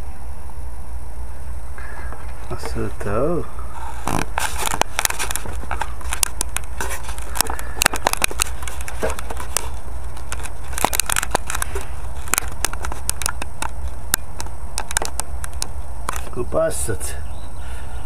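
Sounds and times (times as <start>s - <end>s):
steady low rumble: 0.0s - 18.0s
camera mount clicks and crackles: 4.0s - 16.3s.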